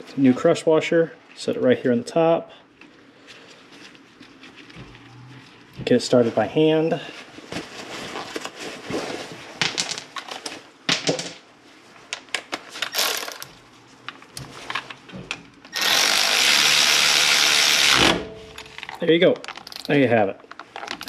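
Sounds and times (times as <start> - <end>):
power ratchet running: 15.7 - 18.2.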